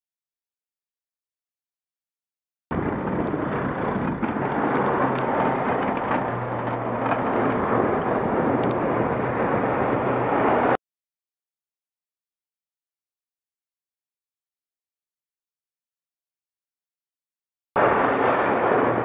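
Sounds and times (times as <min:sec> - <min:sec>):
low engine hum: 0:02.7 - 0:10.8, 0:17.8 - 0:19.0
road noise: 0:02.7 - 0:10.8, 0:17.8 - 0:19.0
rushing wind: 0:02.7 - 0:10.8, 0:17.8 - 0:19.0.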